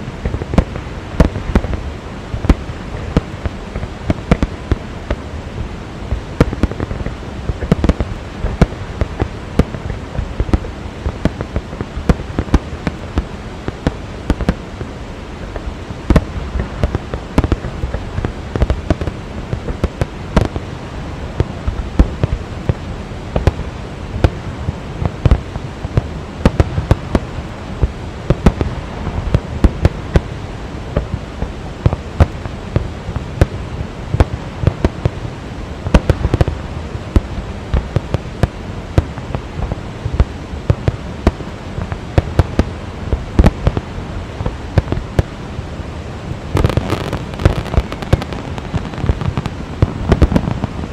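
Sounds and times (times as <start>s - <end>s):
fireworks bangs and crackles: 0.0s - 50.9s
steady rushing noise: 0.0s - 50.9s.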